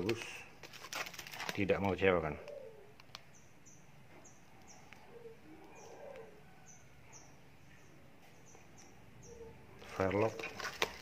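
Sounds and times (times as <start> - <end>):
small bird chirping: 2.4 - 10.5.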